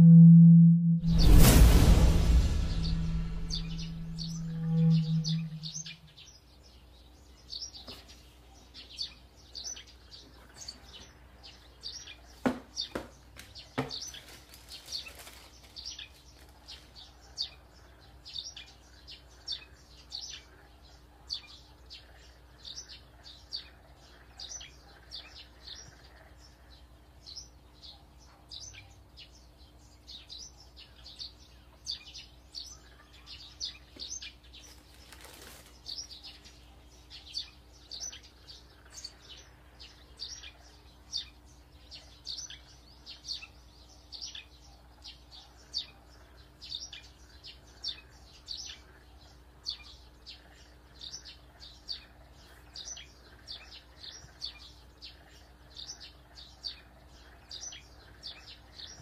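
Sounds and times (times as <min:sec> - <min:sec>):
faint hum: 0:00.0 - 0:07.4
small bird chirping: 0:02.8 - 0:59.0.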